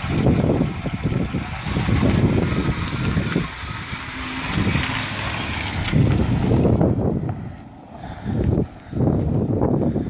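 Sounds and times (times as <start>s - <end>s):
car engine pulling away: 0.0s - 10.0s.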